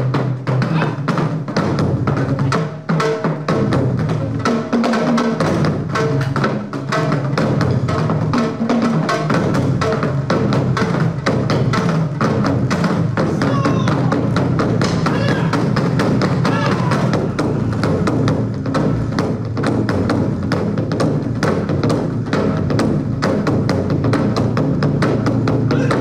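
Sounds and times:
drum ensemble playing: 0.0s - 26.0s
bass drum strikes: 5.4s - 26.0s.

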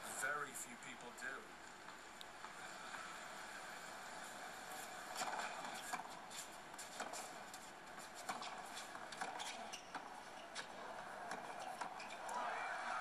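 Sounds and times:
steady low hiss: 0.0s - 9.1s.

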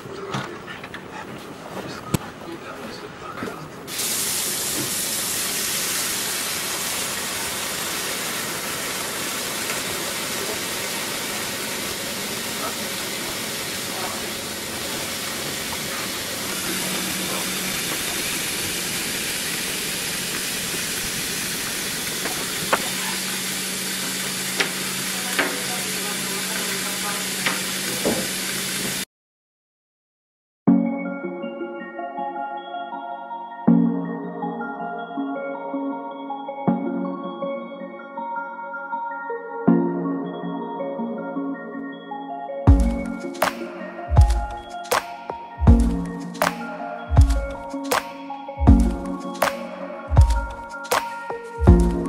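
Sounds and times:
water running into sink: 3.9s - 29.0s.

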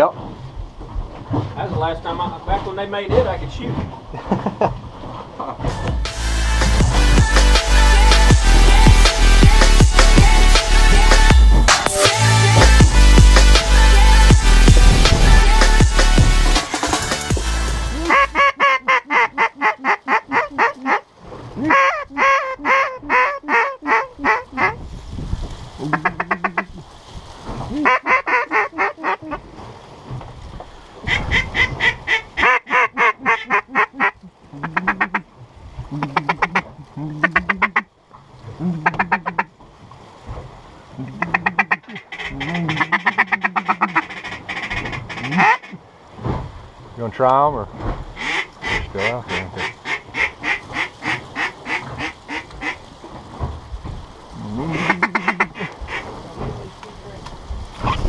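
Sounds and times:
duck call quacking: 17.9s - 21.0s, 21.6s - 24.8s, 25.8s - 26.7s, 27.8s - 29.4s, 31.1s - 35.2s, 36.0s - 37.8s, 38.8s - 39.5s, 41.2s - 45.8s, 48.2s - 52.8s, 54.6s - 56.1s
rapid short quacks: 41.2s - 45.8s, 48.2s - 52.8s, 54.7s - 56.1s.

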